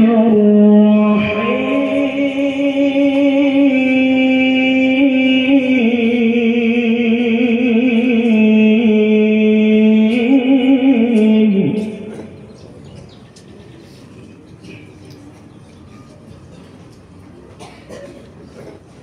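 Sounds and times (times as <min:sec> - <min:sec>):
man reciting melodically: 0:00.0 - 0:12.8.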